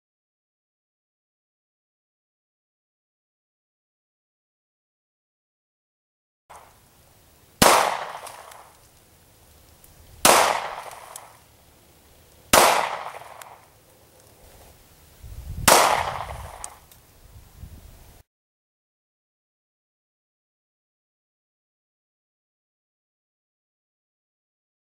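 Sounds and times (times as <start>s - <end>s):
gunshots: 7.6s - 8.7s, 10.2s - 11.4s, 12.5s - 13.7s, 15.6s - 16.8s.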